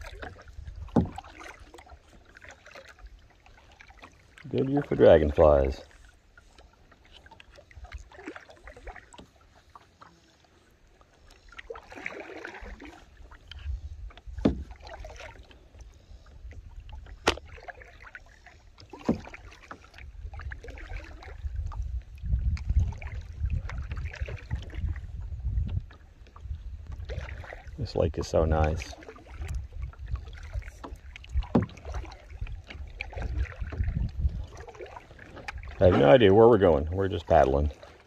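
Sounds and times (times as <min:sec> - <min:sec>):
paddle strokes swishing through water: 0:00.0 - 0:38.0.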